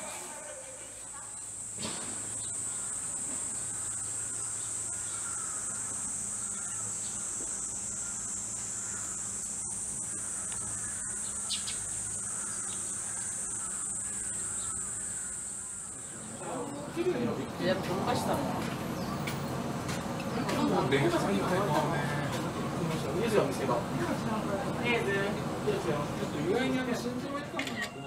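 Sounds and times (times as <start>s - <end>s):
insects shrilling: 0.0s - 17.4s.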